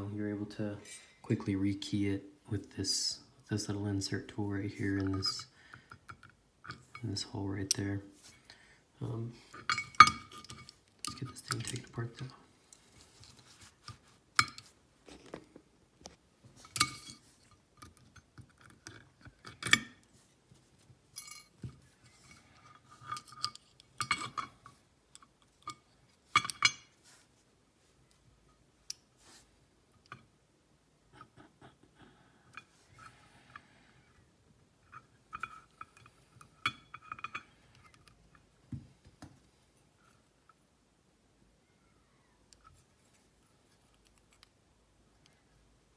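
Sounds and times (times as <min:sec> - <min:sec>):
small metal lock parts clinking: 0:09.6 - 0:12.4, 0:22.4 - 0:26.9.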